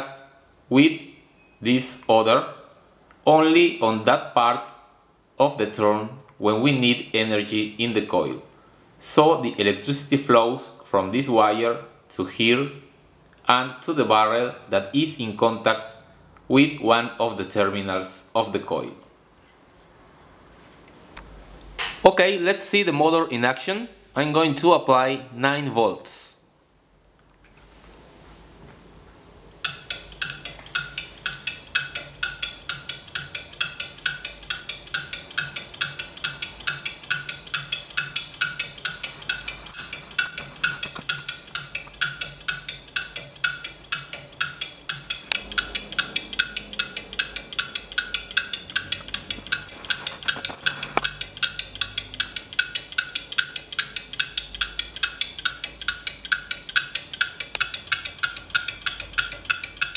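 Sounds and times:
solenoid engine clicking: 29.6s - 59.9s.

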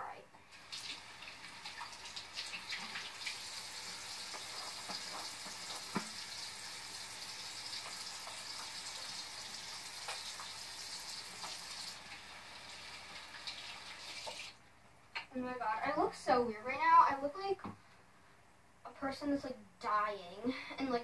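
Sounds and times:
water running from sink tap: 0.5s - 14.6s.

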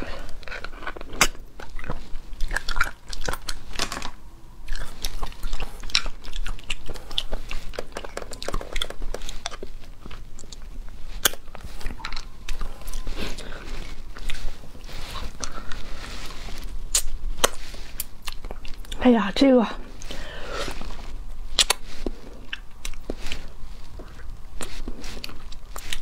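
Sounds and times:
sucking and chewing: 0.0s - 19.1s, 19.8s - 26.0s
wet mouth clicks and smacks: 4.7s - 9.6s, 21.5s - 21.8s.

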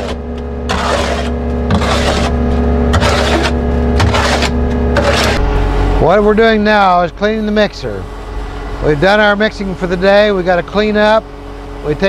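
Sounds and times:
tool scraping concrete in drum: 0.0s - 5.5s
loader engine running: 0.0s - 12.0s.

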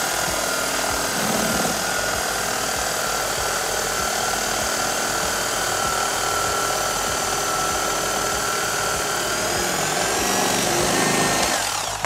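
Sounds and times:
blades sawing through foam: 0.0s - 12.0s
electric carving knife whining: 0.0s - 12.0s.

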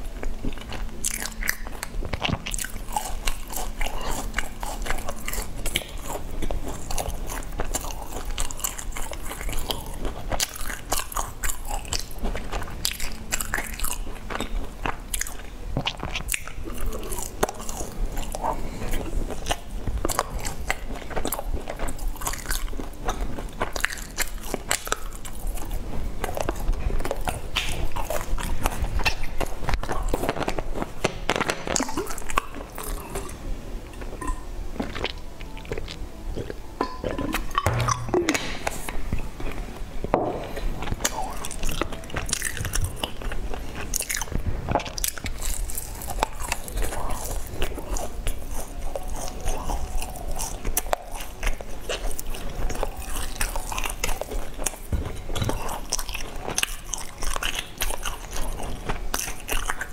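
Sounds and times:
chewing crunchy bread: 0.0s - 38.0s, 38.6s - 59.9s.

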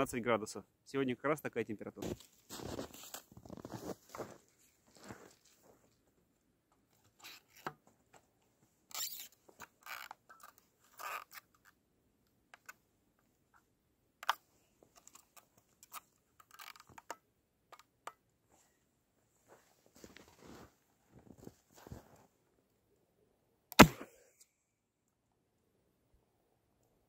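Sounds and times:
clothing rustling: 2.0s - 6.0s, 19.4s - 22.3s
snow crunching: 2.0s - 6.0s, 19.4s - 22.3s.

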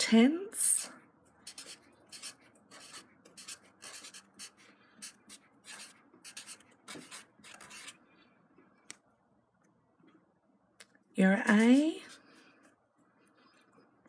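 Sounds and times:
felt-tip marker writing on paper: 1.4s - 8.0s.

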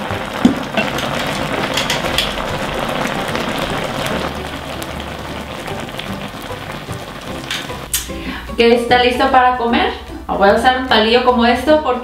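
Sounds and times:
thick sauce boiling in a pot: 0.0s - 8.6s.

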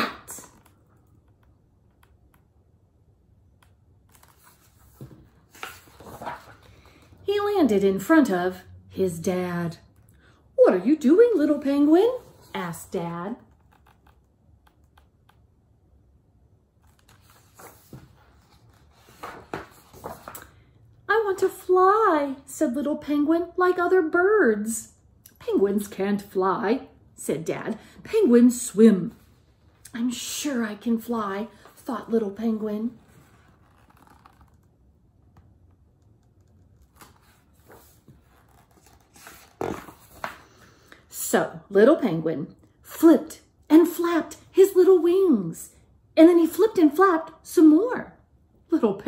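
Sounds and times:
book pages rustling: 4.0s - 7.2s, 16.8s - 20.6s, 32.9s - 40.8s.

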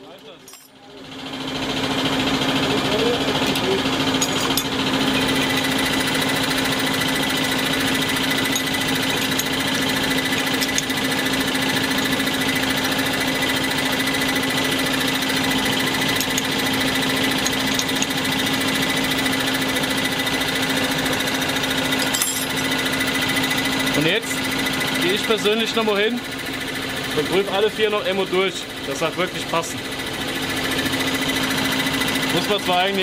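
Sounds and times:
pump test bench rattling: 4.0s - 13.4s.

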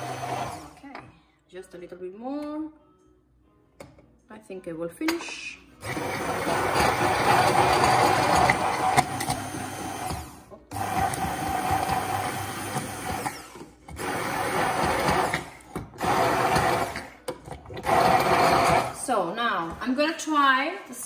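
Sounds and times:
stick blender running: 0.0s - 0.8s, 5.8s - 19.0s.

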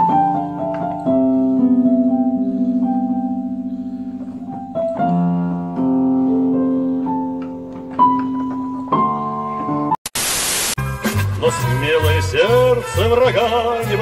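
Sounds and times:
electric piano chords: 0.0s - 10.0s.

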